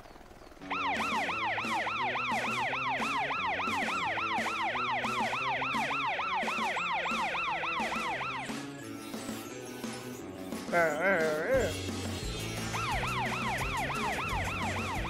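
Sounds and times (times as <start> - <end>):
background music: 0.6 - 15.0
cartoon fire truck siren yelping: 0.7 - 8.6, 12.6 - 15.0.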